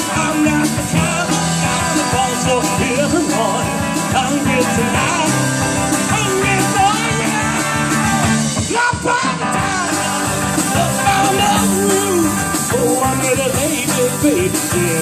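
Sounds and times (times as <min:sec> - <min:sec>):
live rock band playing: 0:00.0 - 0:15.0
lead guitar bending pitch: 0:09.4 - 0:15.0.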